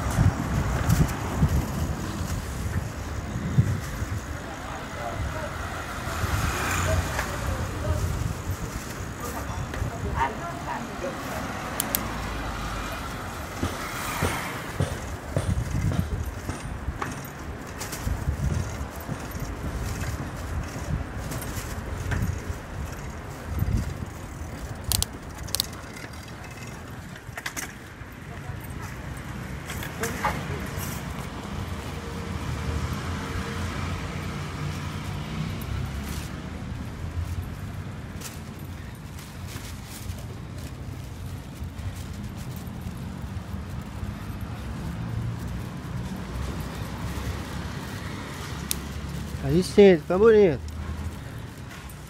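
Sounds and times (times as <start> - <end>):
wind hitting microphone: 0.0 - 10.3, 13.0 - 25.9
bicycle riding over rough asphalt: 0.0 - 52.0.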